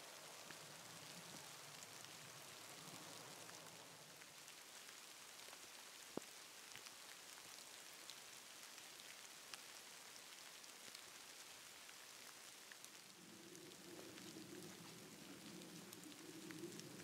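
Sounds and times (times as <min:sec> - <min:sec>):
light rain patter on leaves: 0:00.0 - 0:17.0
small ticks: 0:12.2 - 0:17.0.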